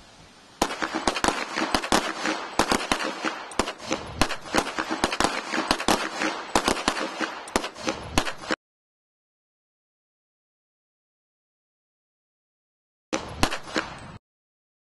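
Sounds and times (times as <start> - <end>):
pistols firing: 0.6 - 8.6, 13.2 - 14.0.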